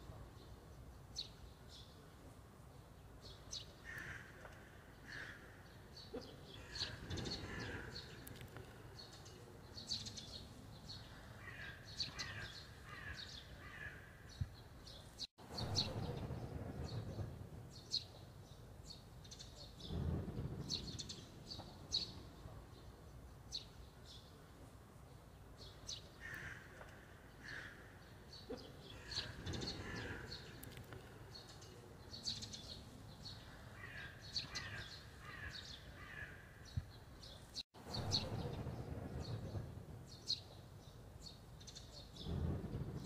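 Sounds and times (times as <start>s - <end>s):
small birds chirping: 0.3s - 43.0s.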